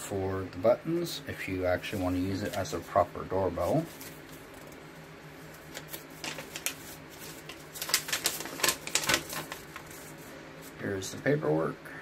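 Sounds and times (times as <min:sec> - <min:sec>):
paper crackling: 0:01.7 - 0:10.8.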